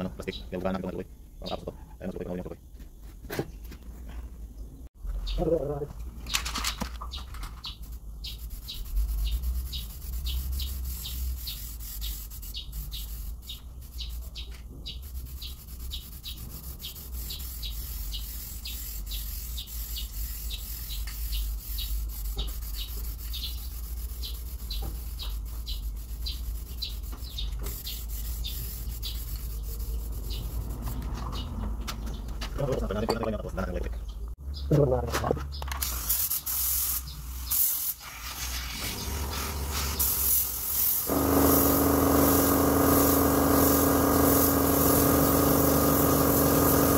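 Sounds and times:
aerosol spray can hissing: 8.3 - 14.2, 14.9 - 30.8, 35.8 - 46.9.

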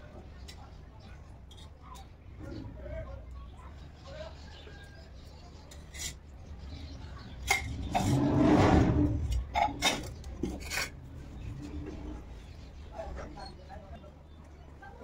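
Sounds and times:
steel scraping on concrete: 5.7 - 6.3, 7.2 - 12.6.

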